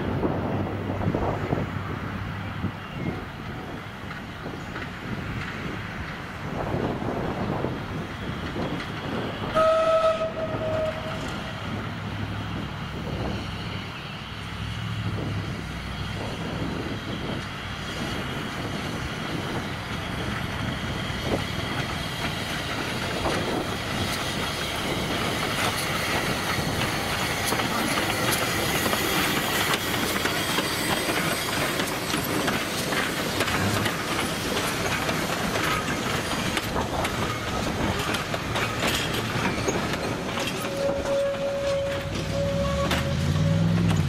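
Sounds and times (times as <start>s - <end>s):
steam locomotive running: 0.0s - 44.0s
steam whistle blast: 9.5s - 11.3s, 40.7s - 43.8s.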